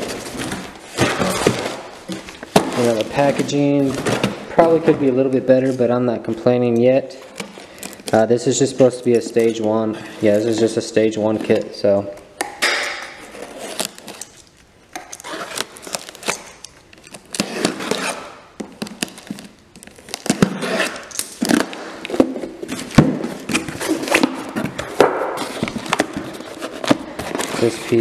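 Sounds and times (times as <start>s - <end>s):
cardboard scraping and rustling: 0.0s - 5.8s, 20.1s - 28.0s
packing tape tearing: 7.2s - 10.8s, 12.4s - 28.0s.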